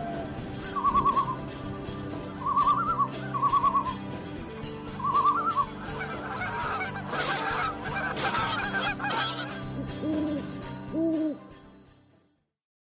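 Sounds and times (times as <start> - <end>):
background music: 0.0 - 12.4
birds calling: 2.3 - 4.1, 4.8 - 11.4
low hoot: 8.6 - 11.5.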